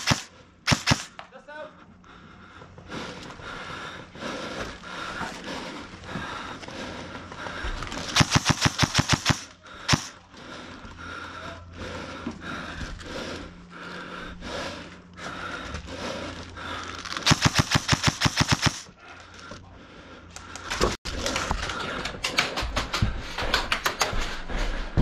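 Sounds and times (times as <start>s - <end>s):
airsoft rifle full-auto burst: 0.0s - 1.1s, 8.1s - 10.1s, 17.1s - 18.9s
quiet airsoft shots: 0.0s - 1.5s, 8.1s - 10.2s, 17.2s - 18.9s.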